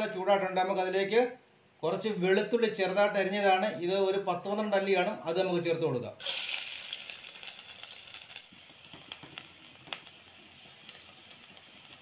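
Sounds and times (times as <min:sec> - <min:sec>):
garlic sizzling in hot oil: 0:06.2 - 0:12.0
oil popping: 0:06.2 - 0:12.0.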